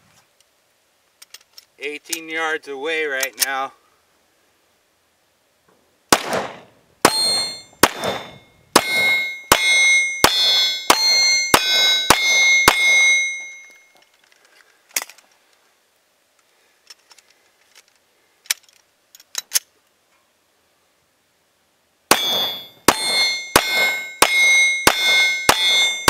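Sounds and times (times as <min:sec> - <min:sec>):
pistol shots: 0:06.1 - 0:13.1, 0:22.1 - 0:26.0
bullet clanging on steel target: 0:07.1 - 0:14.0, 0:22.1 - 0:26.0.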